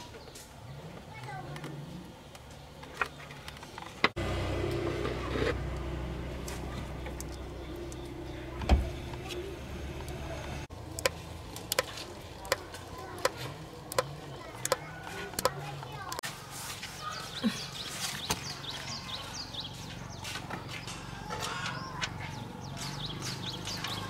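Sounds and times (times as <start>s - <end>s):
engine-like hum: 0.0s - 16.2s, 19.1s - 24.0s
oil dripping into a bucket: 5.7s - 8.6s.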